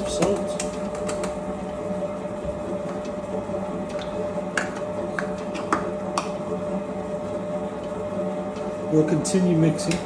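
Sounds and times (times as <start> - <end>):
stand mixer kneading dough: 0.0 - 10.0.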